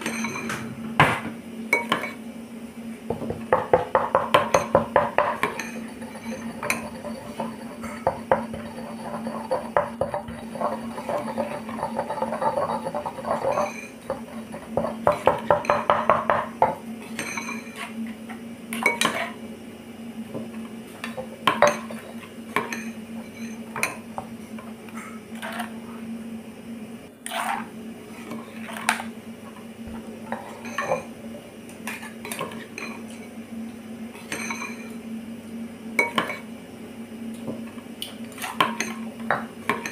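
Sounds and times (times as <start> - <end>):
steady low hum: 0.8 - 17.1
pestle pounding in stone mortar: 3.1 - 16.7.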